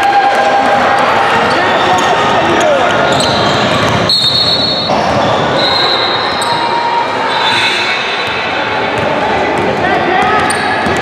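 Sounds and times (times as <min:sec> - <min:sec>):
din of gym hall: 0:00.0 - 0:11.0
basketball bouncing: 0:08.2 - 0:11.0.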